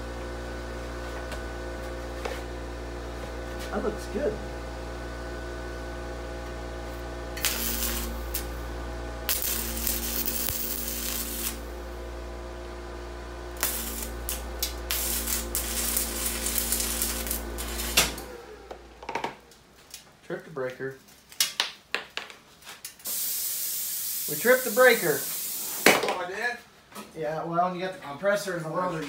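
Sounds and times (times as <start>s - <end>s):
air compressor humming: 1.0s - 19.1s
welding arc crackling and hissing: 7.4s - 8.6s, 9.2s - 11.8s, 13.5s - 18.3s, 23.0s - 26.0s.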